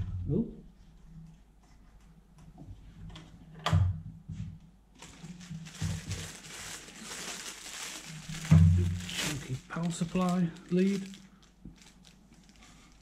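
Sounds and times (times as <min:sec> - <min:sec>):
plastic bag crinkling: 0:04.9 - 0:13.0.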